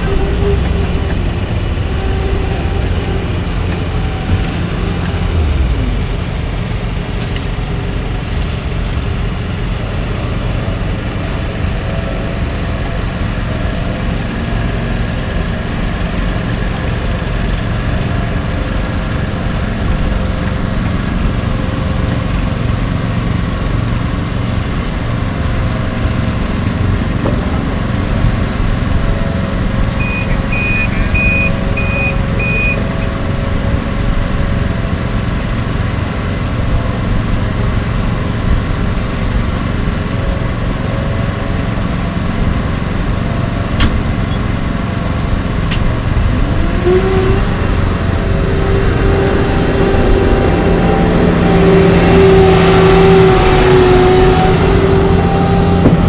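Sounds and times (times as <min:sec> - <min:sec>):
pickup truck engine rumble: 0:00.0 - 0:56.0.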